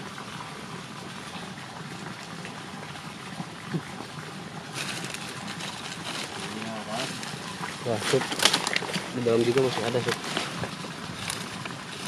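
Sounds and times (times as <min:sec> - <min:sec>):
water-like rushing noise: 0:00.0 - 0:12.0
dry leaves and grass rustling: 0:04.7 - 0:12.0.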